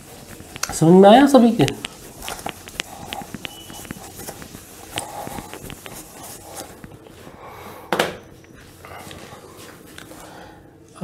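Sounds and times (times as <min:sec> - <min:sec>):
duster rubbing on whiteboard: 0:00.0 - 0:07.4.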